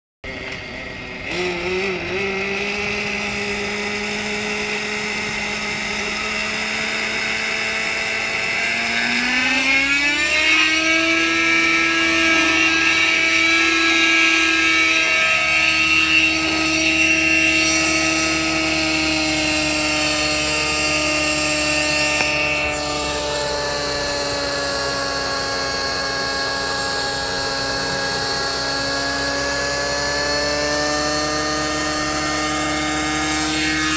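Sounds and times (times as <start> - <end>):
model helicopter engine: 0.2 - 33.9
rotor whirring: 0.3 - 33.9.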